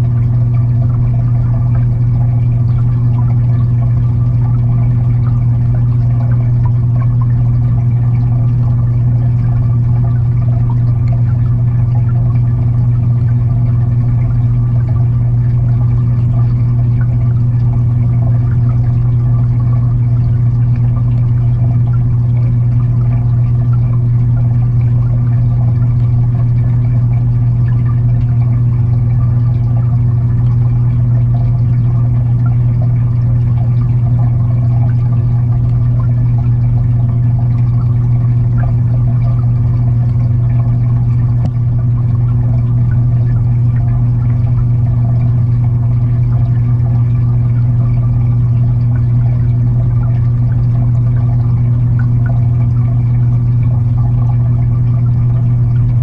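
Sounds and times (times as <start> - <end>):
aquarium filter pump humming: 0.0 - 56.0
water trickling: 0.0 - 56.0.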